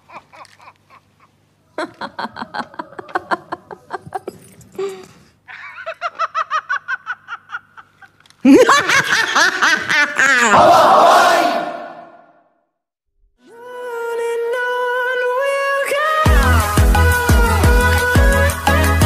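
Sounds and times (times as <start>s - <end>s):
woman laughing: 0.0s - 10.6s
loud voice: 10.4s - 12.1s.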